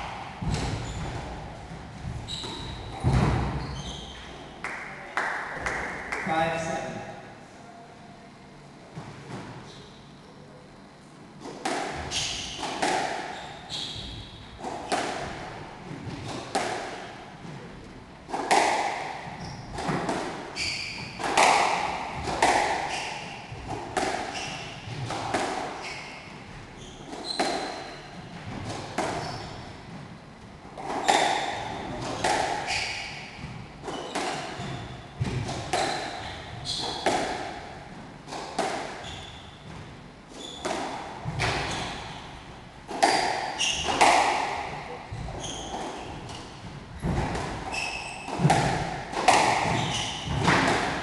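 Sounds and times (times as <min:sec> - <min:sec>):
squash ball hitting racket and walls: 0:00.0 - 0:06.2, 0:08.9 - 0:10.0, 0:11.3 - 0:51.0
shoes squeaking on wooden floor: 0:00.5 - 0:04.5, 0:19.2 - 0:28.3, 0:28.9 - 0:30.0, 0:30.8 - 0:37.4, 0:38.9 - 0:44.2, 0:45.1 - 0:50.6.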